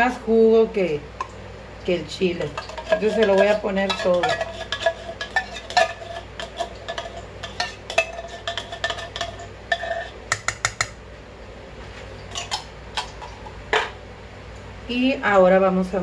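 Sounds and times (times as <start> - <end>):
metal spoon scraping tin can: 2.4 - 10.2, 12.3 - 13.4.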